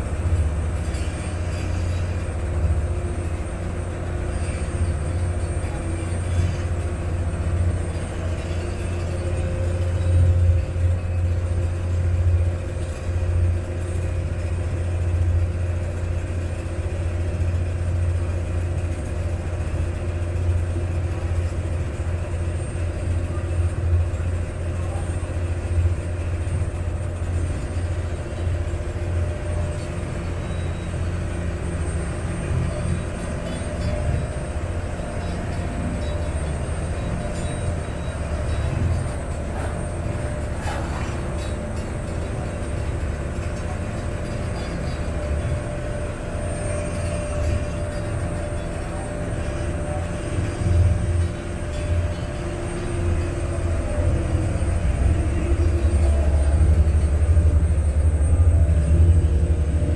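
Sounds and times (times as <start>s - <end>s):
boat engine drone: 0.0s - 59.9s.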